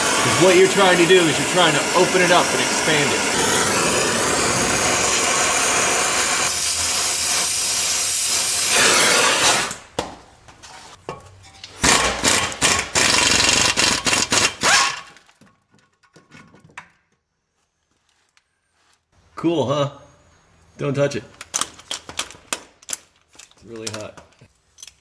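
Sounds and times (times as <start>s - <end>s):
gas torch flame hissing: 0.0s - 9.8s
impact wrench bursts: 0.0s - 9.8s, 11.8s - 15.1s.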